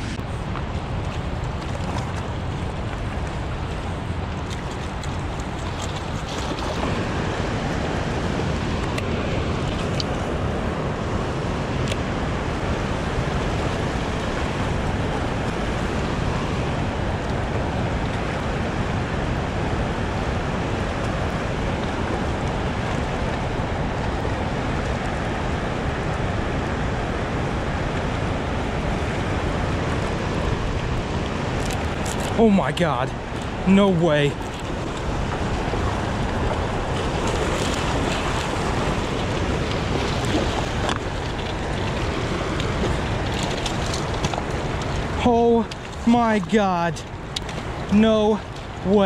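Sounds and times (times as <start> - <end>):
water rushing: 0.0 - 49.0
wind on microphone: 33.1 - 46.3.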